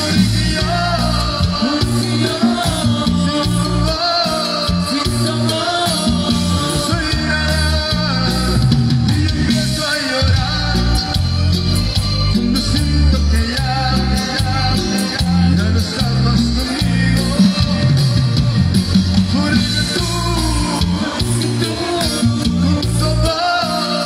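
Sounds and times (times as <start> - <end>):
congas: 0.0 - 24.0
drum kit percussion: 0.0 - 24.0
electric bass line: 0.0 - 24.0
electric guitar: 0.0 - 24.0.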